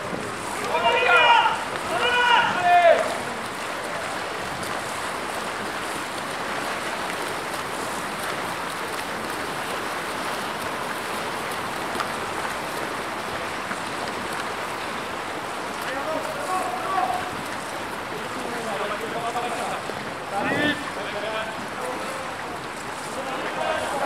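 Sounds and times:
swimmers splashing water: 0.0 - 24.0.

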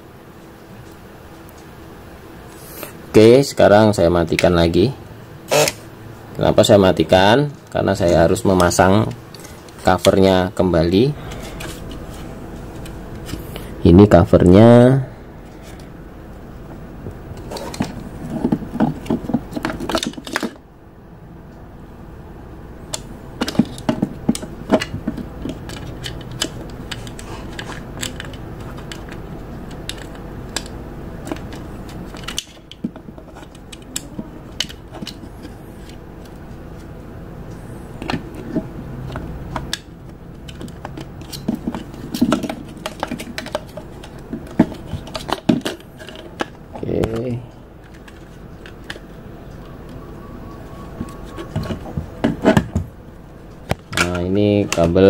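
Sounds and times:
plastic parts clicking and rattling: 22.9 - 36.4, 40.5 - 49.0.

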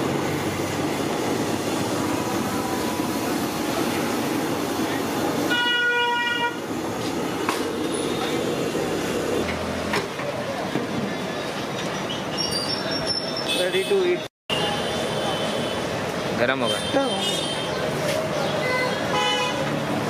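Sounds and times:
street din: 0.0 - 20.0
vehicle horn honking: 5.5 - 6.6, 18.6 - 19.6.

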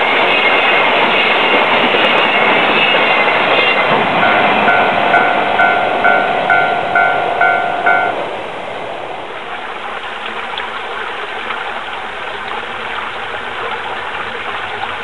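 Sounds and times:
level crossing warning bell: 3.3 - 8.5
low background noise: 3.9 - 15.0.

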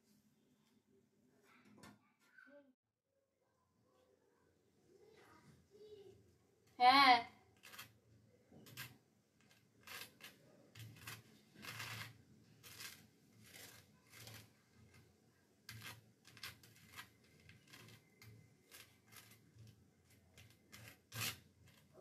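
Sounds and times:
knife scraping bread: 7.6 - 8.0, 8.6 - 22.0.

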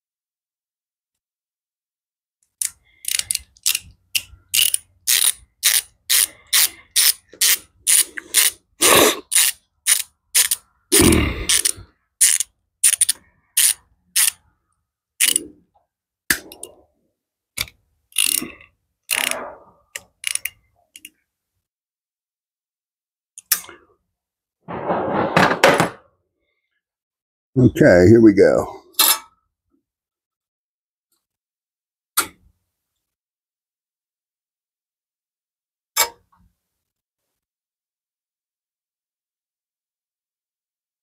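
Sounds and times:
socket ratchet clicking: 2.6 - 8.6, 9.3 - 10.6, 11.5 - 14.4, 15.2 - 15.4, 20.0 - 21.1.

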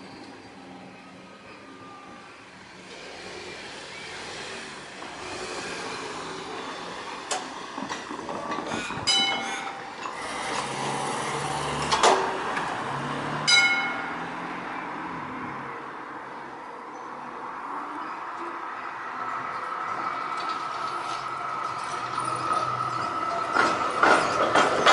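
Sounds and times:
tyres clunking over rails: 5.0 - 12.8, 20.3 - 24.9
passing car engines: 9.1 - 24.9.

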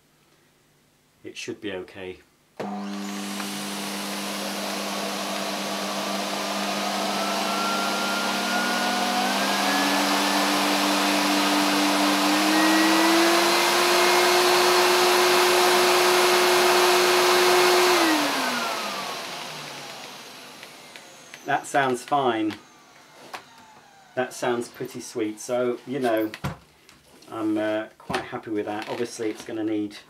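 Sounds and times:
vacuum cleaner motor whine: 2.6 - 24.8.

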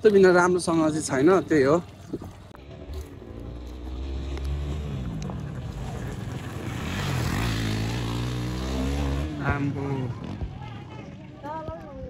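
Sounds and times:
motorcycle engines running: 2.4 - 12.0
motorcycle passing close by: 2.7 - 11.3.

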